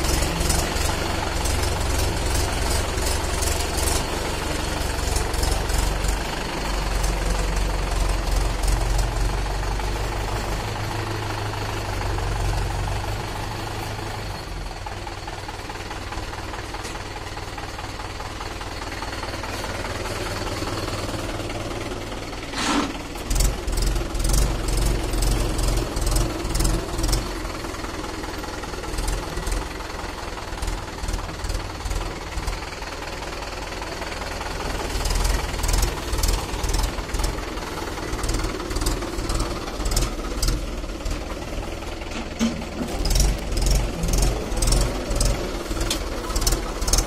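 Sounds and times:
tractor diesel engine clattering: 0.0 - 47.0.

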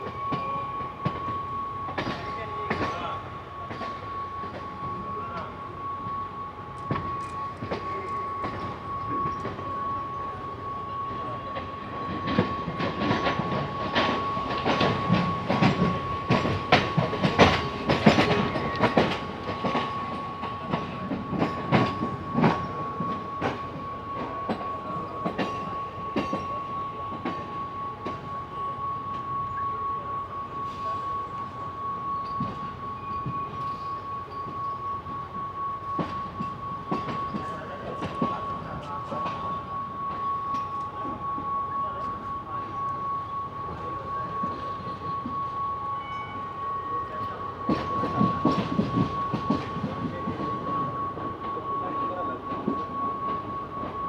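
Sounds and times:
train wheels clattering: 6.7 - 28.3, 35.8 - 42.2, 47.0 - 54.0.

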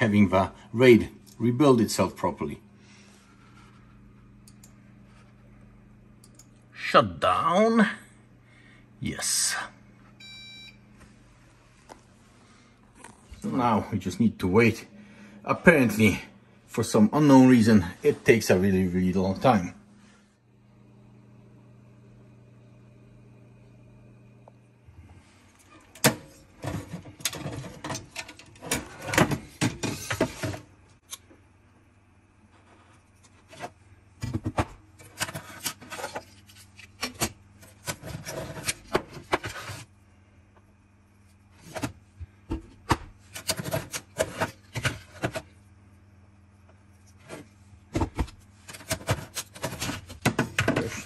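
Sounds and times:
drive trays clicking and scraping: 26.0 - 30.7.

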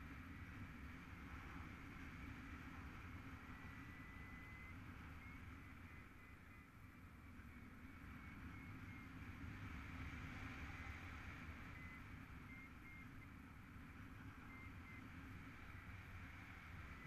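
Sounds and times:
muffled wind rush: 0.0 - 17.0.

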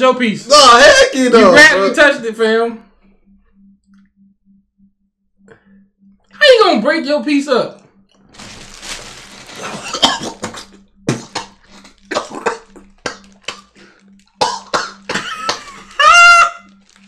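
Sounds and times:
plastic bag rustling: 8.3 - 10.8, 16.7 - 17.0
man coughing and gagging: 9.6 - 13.8, 14.4 - 16.1.

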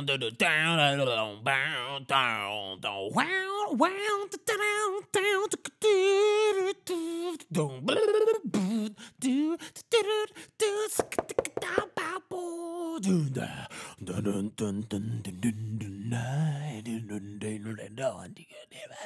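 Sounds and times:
person imitating rock music by mouth: 5.9 - 9.0.

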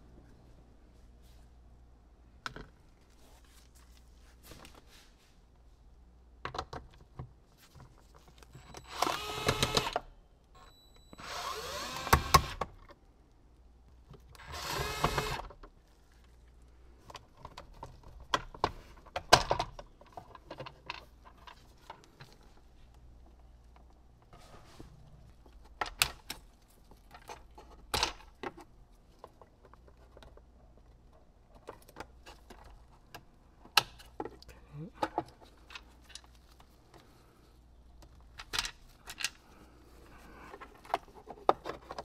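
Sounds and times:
power drill running: 8.8 - 10.0, 11.2 - 12.6, 14.4 - 15.4.

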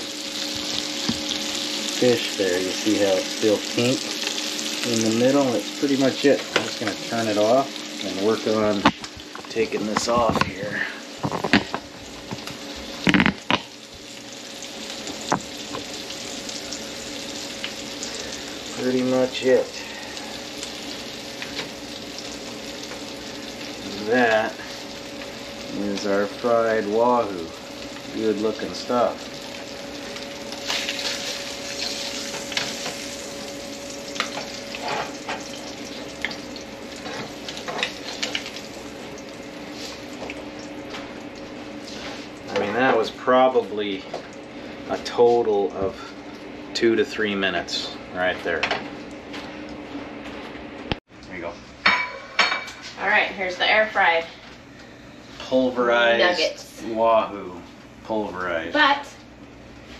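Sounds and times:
fish sizzling in butter: 0.0 - 46.5.

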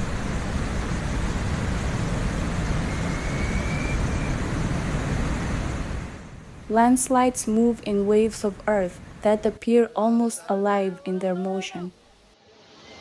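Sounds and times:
flood torrent rushing: 0.0 - 9.3.

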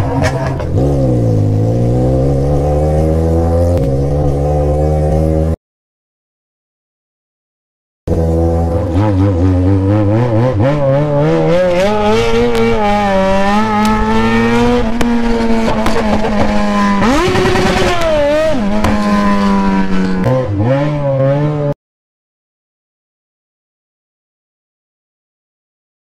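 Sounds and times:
motorcycle engine without silencer: 8.1 - 21.8.

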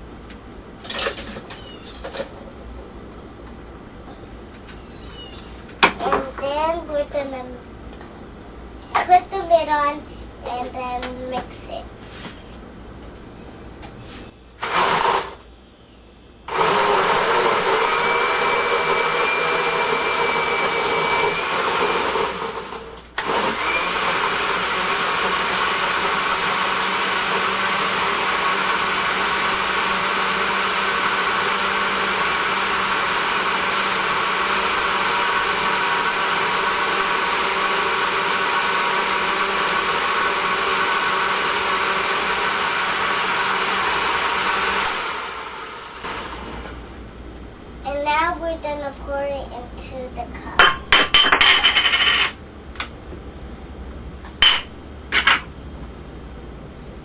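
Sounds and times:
blender running: 14.6 - 15.4, 16.5 - 46.8.

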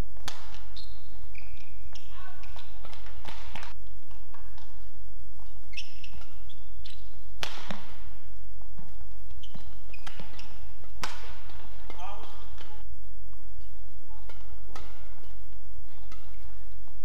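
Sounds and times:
sneakers squeaking on court: 0.2 - 4.8, 5.4 - 12.8
rackets striking shuttlecock: 0.2 - 8.2, 8.8 - 16.6
steady low hum: 10.5 - 17.0.

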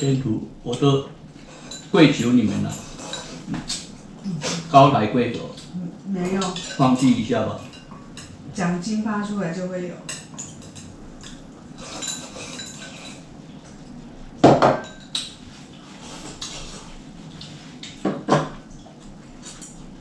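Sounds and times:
utensils clinking on ceramic bowls: 1.5 - 3.9, 5.6 - 8.4, 10.0 - 13.8, 14.5 - 15.4.

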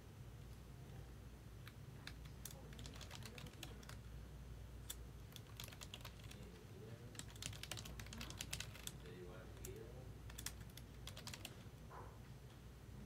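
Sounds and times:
computer keyboard typing: 1.6 - 4.1, 4.8 - 11.7.

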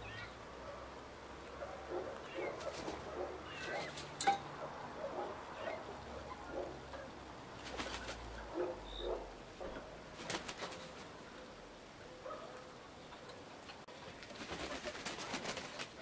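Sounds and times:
chickens giving soft low calls: 0.0 - 16.0
wings flapping: 2.3 - 4.2, 7.6 - 8.4, 10.1 - 11.2, 14.0 - 16.0.

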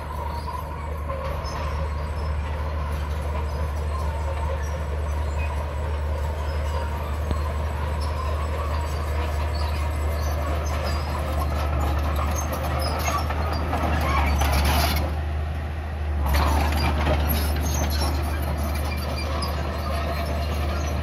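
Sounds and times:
steel tracks clattering: 0.0 - 15.2
bulldozer diesel engine: 0.0 - 21.0.

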